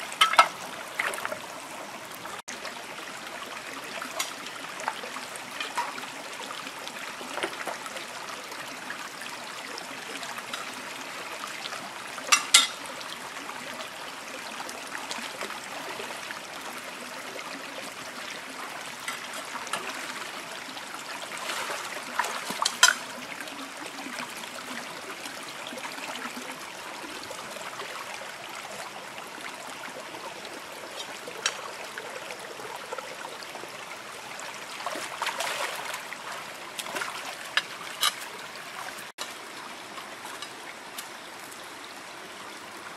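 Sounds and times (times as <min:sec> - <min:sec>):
stream running over rocks: 0:00.0 - 0:42.9
splashes from wading: 0:21.4 - 0:23.1, 0:34.7 - 0:39.1.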